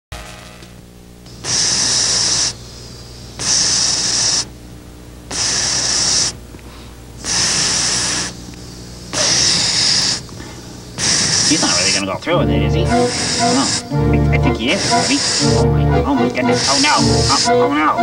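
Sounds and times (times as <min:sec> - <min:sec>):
air pump hissing: 0:01.3 - 0:04.5, 0:05.3 - 0:06.4, 0:07.2 - 0:12.1, 0:12.9 - 0:14.0, 0:14.6 - 0:15.6, 0:16.4 - 0:17.6.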